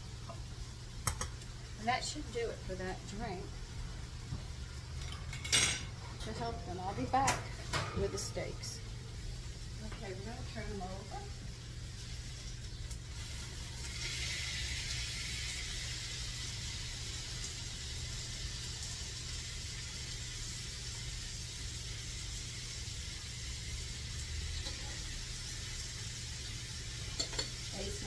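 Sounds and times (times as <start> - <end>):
steaks sizzling in a frying pan: 6.5 - 28.0.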